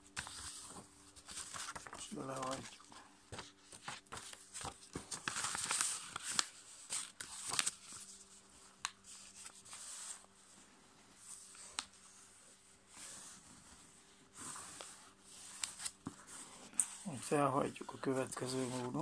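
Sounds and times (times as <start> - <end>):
paper rustling and crinkling: 0.0 - 10.6, 11.2 - 19.0
paper fold clicks: 0.2 - 8.0.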